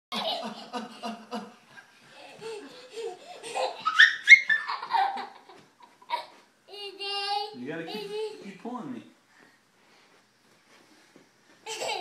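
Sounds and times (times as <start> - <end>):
toddler squealing laughter: 2.6 - 6.4.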